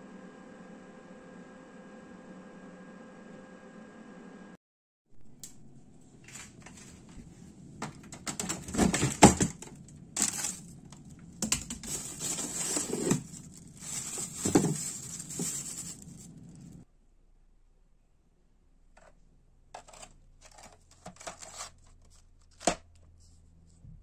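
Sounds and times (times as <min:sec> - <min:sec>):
plastic bags crinkling: 0:07.8 - 0:16.8.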